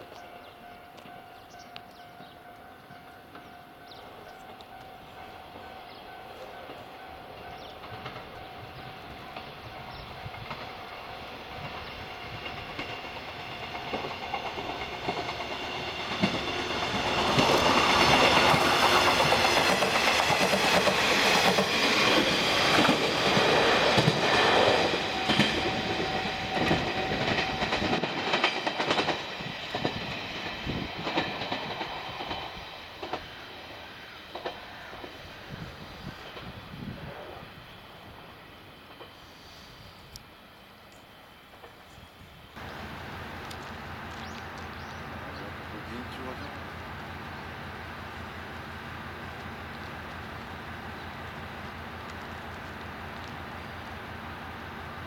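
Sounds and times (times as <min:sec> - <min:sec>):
diesel railcar passing: 0:00.0 - 0:55.0
wheels clacking over rail joints: 0:00.1 - 0:35.2.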